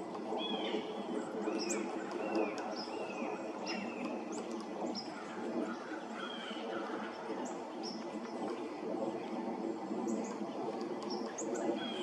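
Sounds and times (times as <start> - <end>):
birds calling: 0.4 - 8.4, 11.1 - 12.0.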